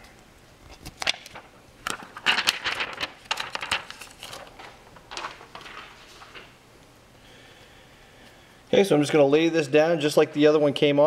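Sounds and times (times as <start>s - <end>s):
plastic film crinkling: 0.7s - 6.6s.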